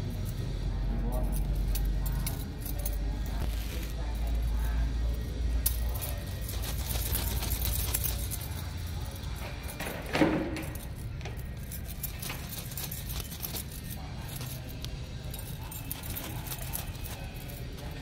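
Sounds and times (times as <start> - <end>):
plastic bag rustling and crinkling: 6.2 - 8.4.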